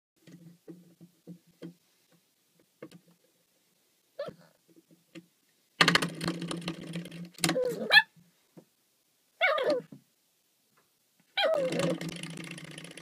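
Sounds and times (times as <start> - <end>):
spring door stopper twanging: 5.8 - 7.8, 11.5 - 13.0.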